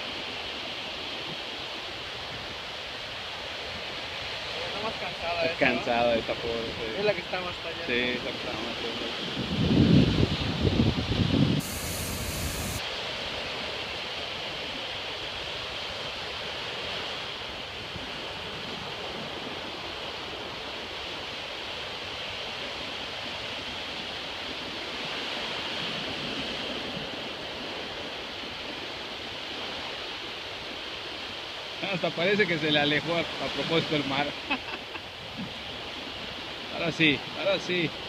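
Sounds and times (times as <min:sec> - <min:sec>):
waves breaking on beach: 0:00.0 - 0:38.0
wind buffeting microphone: 0:01.2 - 0:12.8.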